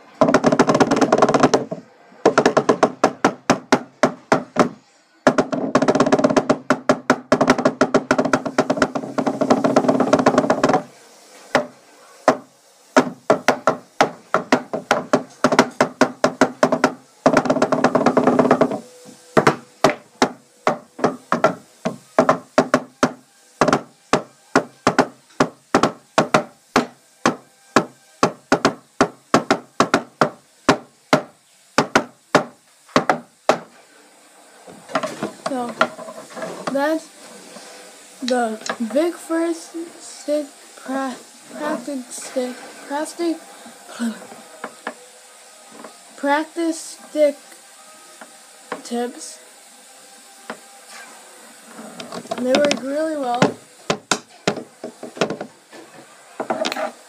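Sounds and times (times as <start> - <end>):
drumsticks drumming on wooden table: 0.2 - 10.9, 11.5 - 18.8, 19.4 - 33.7, 52.0 - 55.5.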